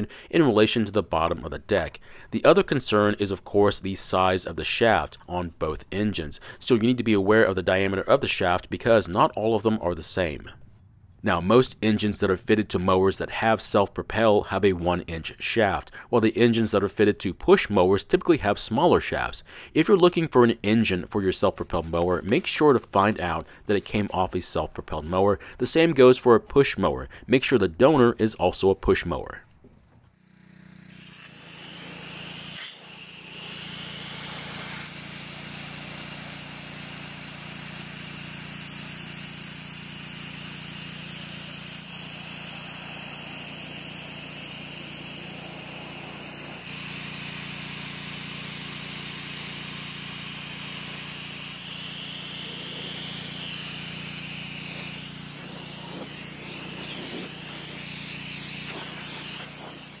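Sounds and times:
pressure washer running: 21.3 - 24.2, 30.1 - 60.0
spray jet hissing on metal: 41.0 - 48.0, 49.0 - 60.0.

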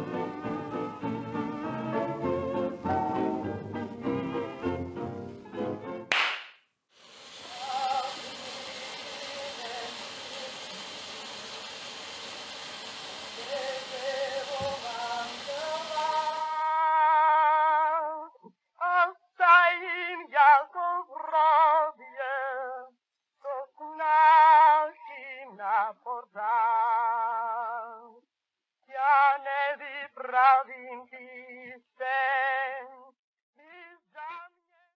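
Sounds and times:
person singing with vibrato: 7.4 - 10.8, 13.3 - 28.2.

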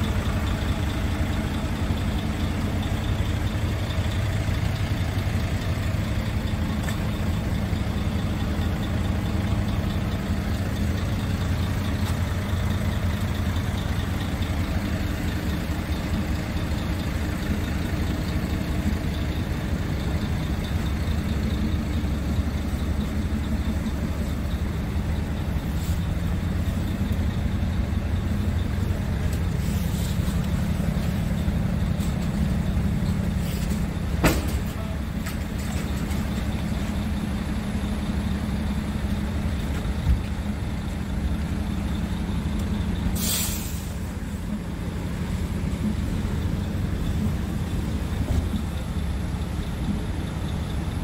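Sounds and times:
diesel truck engine idling: 0.0 - 51.0
air brake hiss: 43.2 - 44.1.

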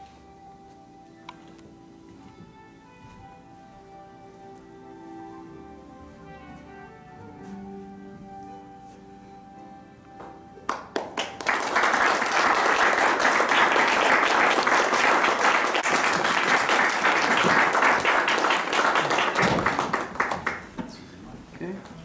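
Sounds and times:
soft music with held tones: 0.0 - 15.8
audience applause: 10.7 - 20.8.

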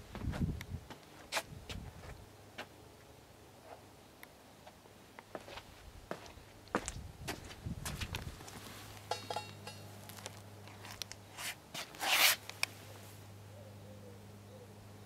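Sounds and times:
rubbing and rustling handling noise: 8.0 - 13.2
faint low hum: 12.4 - 15.0.

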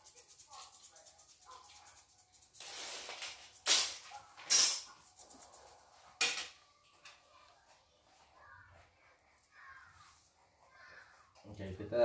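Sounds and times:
metal parts clattering: 3.0 - 4.9.

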